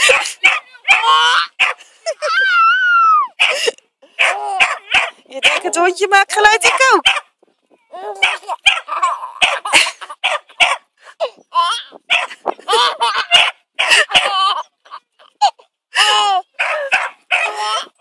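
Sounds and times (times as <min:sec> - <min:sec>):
small dog barking: 0:00.0 - 0:01.8, 0:04.2 - 0:05.7, 0:06.6 - 0:07.3, 0:08.2 - 0:10.8, 0:12.1 - 0:12.4, 0:13.2 - 0:14.3, 0:16.6 - 0:17.6.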